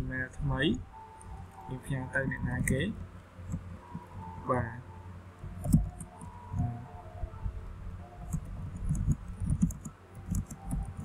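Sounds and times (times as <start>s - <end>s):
dull typing thumps: 5.5s - 6.7s, 8.2s - 11.0s
keyboard key clicks: 8.3s - 11.0s.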